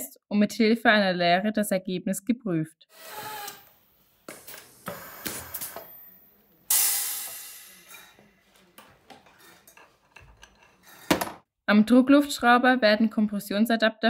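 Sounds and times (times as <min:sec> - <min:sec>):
compressed air hiss: 0:06.7 - 0:08.2.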